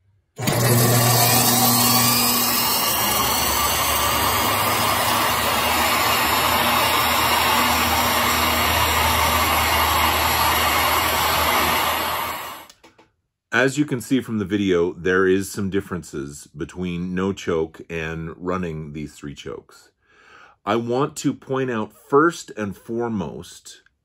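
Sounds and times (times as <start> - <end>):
electric motor whining and humming: 0.4 - 12.7.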